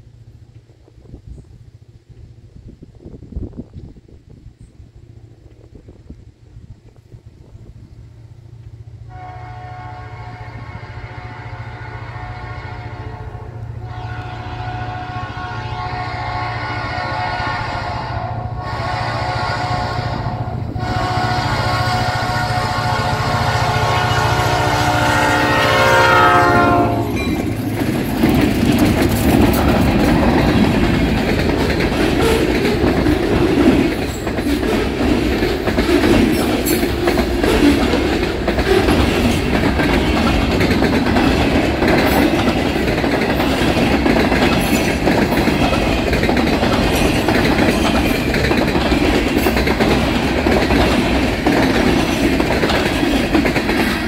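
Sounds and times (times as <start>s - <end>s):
locomotive engine drone: 0.0s - 54.0s
train horn: 9.0s - 27.5s
freight cars clacking on rails: 20.8s - 54.0s.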